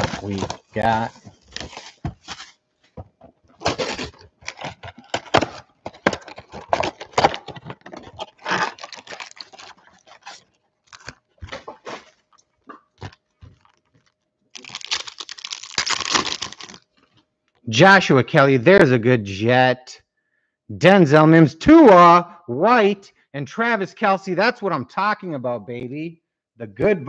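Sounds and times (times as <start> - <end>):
cardboard box tearing and scraping: 0.0 - 2.6, 3.6 - 10.4
shrink-wrap crinkling: 0.0 - 2.6, 3.2 - 17.3
foil packs rustling: 0.0 - 17.1.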